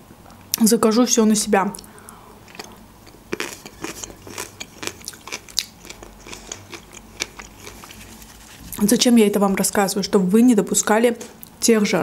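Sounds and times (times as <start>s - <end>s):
mouth clicks and smacks: 1.8s - 8.3s
person chewing food: 1.8s - 8.8s.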